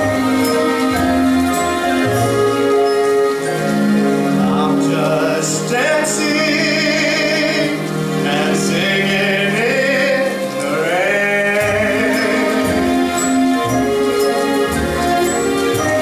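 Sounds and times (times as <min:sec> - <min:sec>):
orchestral accompaniment: 0:00.0 - 0:16.0
person singing: 0:04.2 - 0:13.7.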